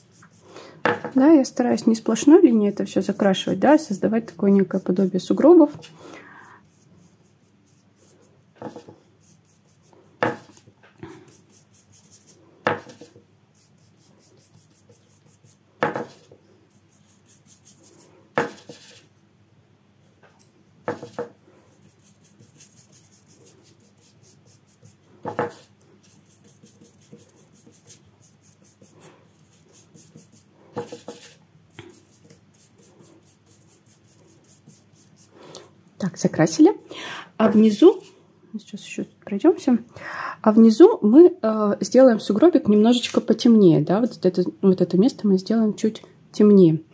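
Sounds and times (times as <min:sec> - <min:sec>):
paintbrush scratching on paper: 0:00.0 - 0:05.9, 0:06.6 - 0:19.2, 0:20.9 - 0:35.4.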